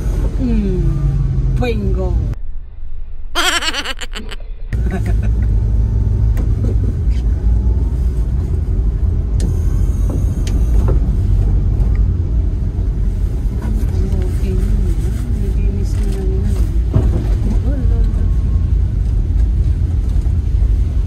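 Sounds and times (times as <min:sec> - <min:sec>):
car engine and tyres rumbling: 0:04.5 - 0:21.0.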